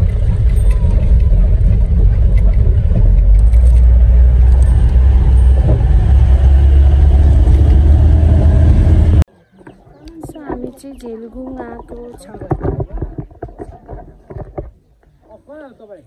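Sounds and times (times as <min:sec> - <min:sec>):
vehicle rumbling on dirt track: 0:00.0 - 0:15.0.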